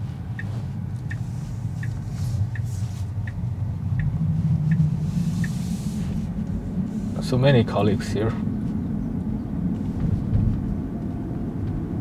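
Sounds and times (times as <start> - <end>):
turn signal ticking: 0.0 - 6.9
road and tyre rumble: 0.0 - 12.0.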